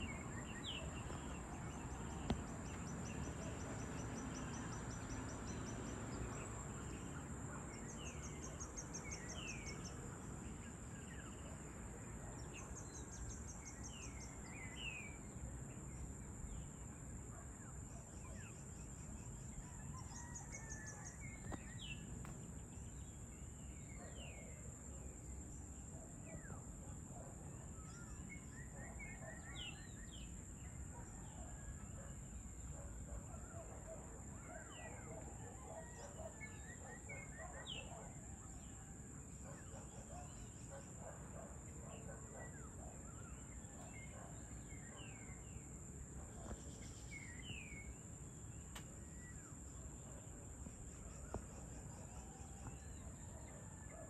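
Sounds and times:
sharp click: 0:48.7 - 0:48.9.

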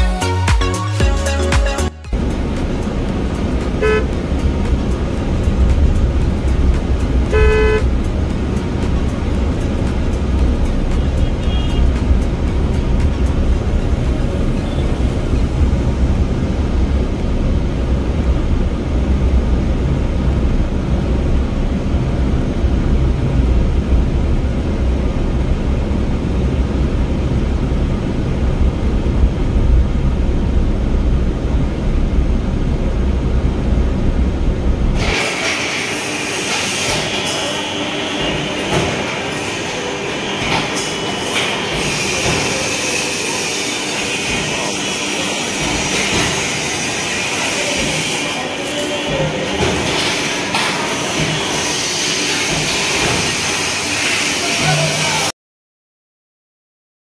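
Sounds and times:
car cabin road rumble: 0:02.1 - 0:35.0
power presses running: 0:35.0 - 0:55.3.

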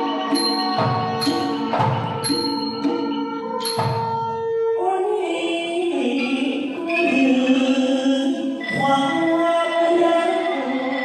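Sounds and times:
person singing into microphone: 0:04.4 - 0:11.0.

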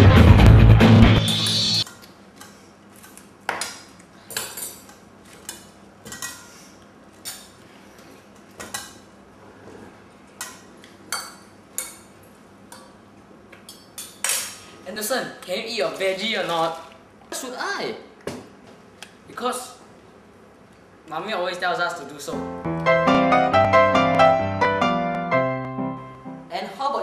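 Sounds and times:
cutlery clinking against plates: 0:01.9 - 0:07.6.

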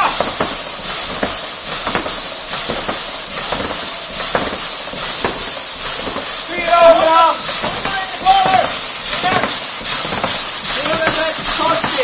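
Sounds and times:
fan flywheel whooshing: 0:00.0 - 0:12.0.

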